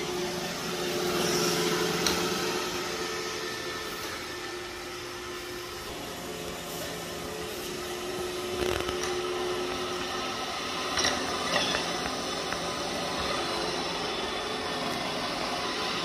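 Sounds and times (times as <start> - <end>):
robot vacuum whirring: 0.0 - 16.0.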